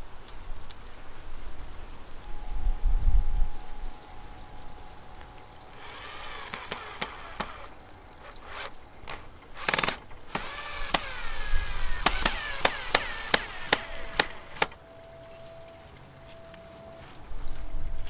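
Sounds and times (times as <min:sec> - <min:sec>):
cordless drill driving screw: 0:05.7 - 0:14.8
drill clutch clicks: 0:05.7 - 0:14.8.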